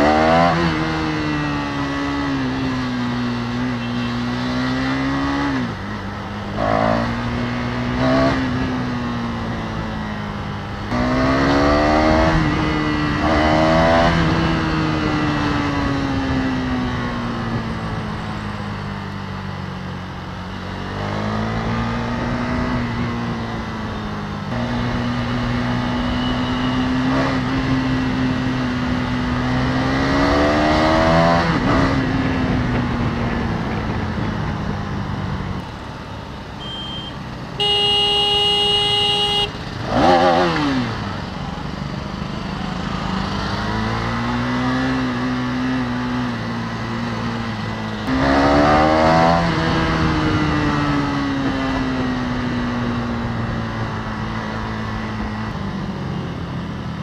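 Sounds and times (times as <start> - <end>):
motorcycle engine accelerating: 0.0 - 18.3, 20.7 - 36.0, 37.6 - 57.0
wind and road noise: 0.0 - 57.0.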